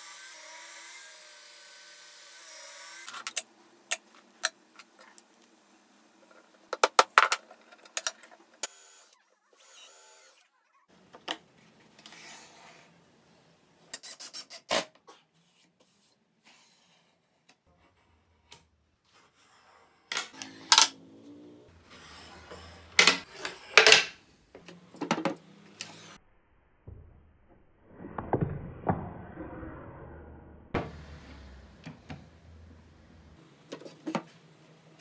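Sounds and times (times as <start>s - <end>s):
wood scraping against wood: 21.7s - 24.2s.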